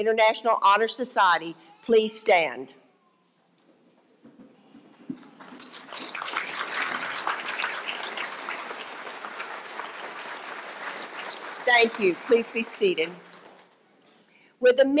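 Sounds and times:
audience applauding: 0:05.2 - 0:13.4.

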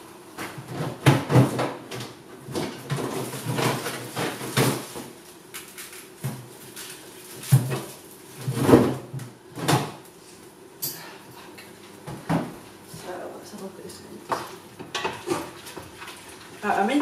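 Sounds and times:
items clunking in a fridge: 0:00.3 - 0:05.2, 0:05.8 - 0:10.0.

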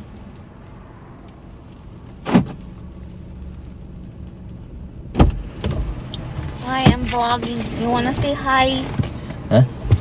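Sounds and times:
car door opening click: 0:02.2 - 0:02.6
car door shutting thud: 0:02.2 - 0:02.6, 0:05.1 - 0:05.9.

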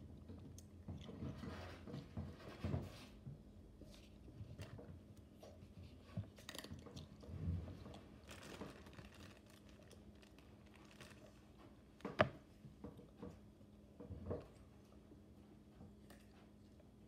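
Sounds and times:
child chewing crunchy food: 0:03.9 - 0:12.0, 0:15.6 - 0:17.0.

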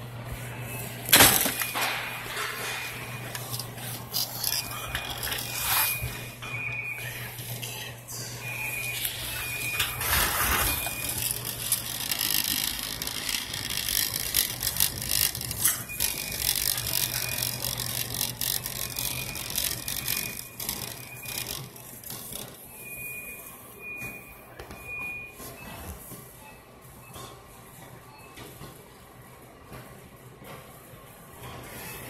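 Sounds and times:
shopping cart rolling and rattling: 0:08.9 - 0:22.5.

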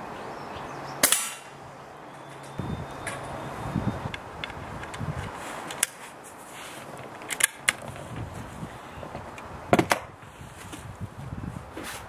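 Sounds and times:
air rifle lever metallic clicks: 0:07.2 - 0:07.8.

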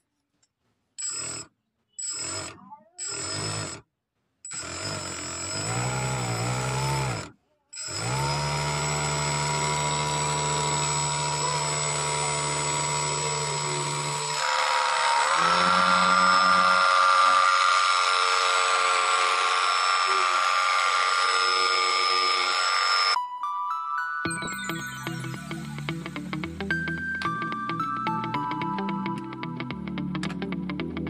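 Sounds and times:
small motor whining: 0:01.0 - 0:03.8, 0:04.5 - 0:23.2.

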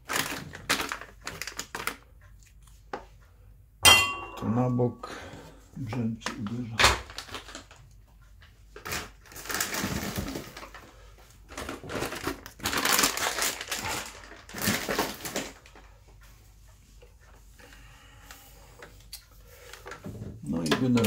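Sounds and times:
rustling handling noise: 0:00.0 - 0:02.1, 0:04.0 - 0:17.6.

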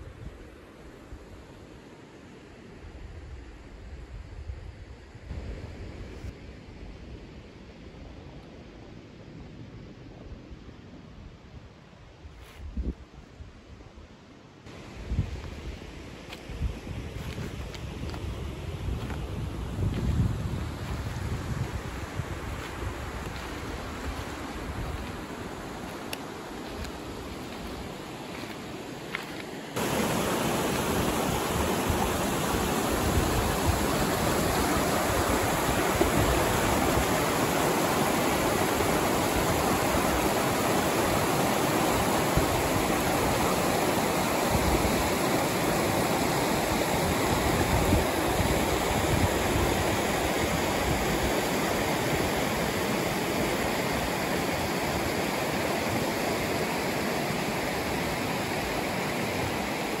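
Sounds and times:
water rushing over rocks: 0:20.6 - 1:00.0.

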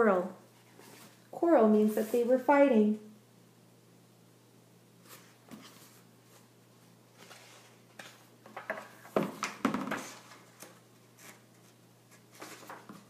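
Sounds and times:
book rustling: 0:05.0 - 0:06.5, 0:07.1 - 0:13.0.

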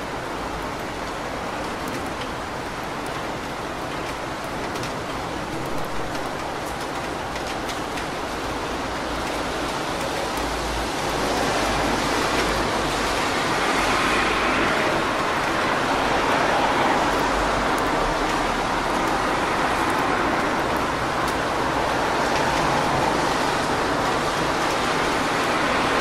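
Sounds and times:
rain falling on street: 0:00.0 - 0:26.0
car tyres hissing on wet road: 0:09.0 - 0:26.0.

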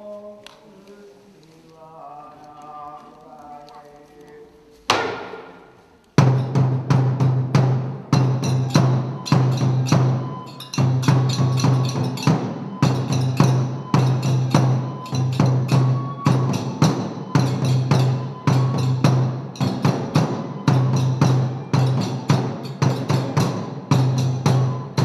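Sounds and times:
sharp percussion strokes: 0:05.0 - 0:25.0
big drum booming: 0:06.2 - 0:25.0.

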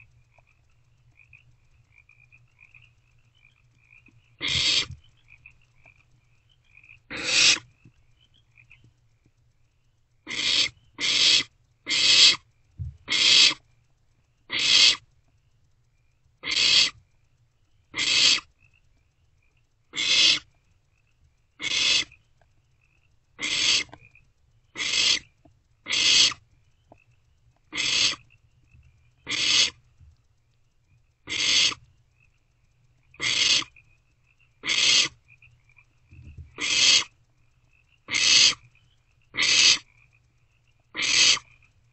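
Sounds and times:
owlets hissing screeches: 0:04.4 - 0:05.0, 0:07.1 - 0:07.6, 0:41.0 - 0:41.4.

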